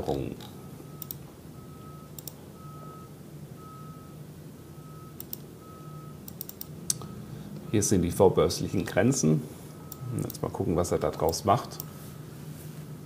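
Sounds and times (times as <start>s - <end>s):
short clicks: 0.4s - 1.2s, 2.2s - 2.4s, 6.3s - 7.1s.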